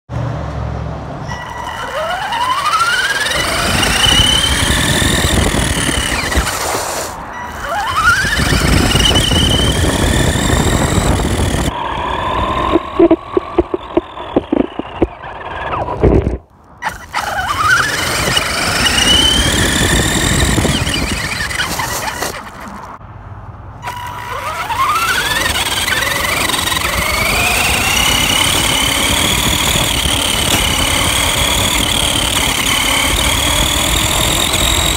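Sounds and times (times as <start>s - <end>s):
tyres rumbling on pavement: 0.6s - 23.0s, 23.8s - 34.9s
electric rc car motor whining: 1.2s - 23.0s, 23.8s - 34.9s.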